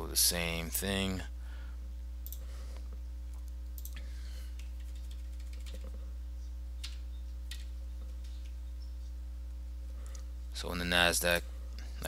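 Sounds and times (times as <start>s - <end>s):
steady low hum: 0.0s - 12.0s
keyboard and mouse clicks: 3.4s - 4.0s, 4.6s - 6.0s, 6.8s - 8.6s.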